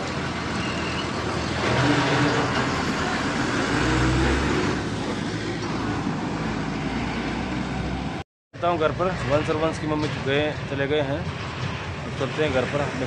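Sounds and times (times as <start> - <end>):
bus engine revving: 0.0 - 8.2
road traffic noise: 0.0 - 13.0.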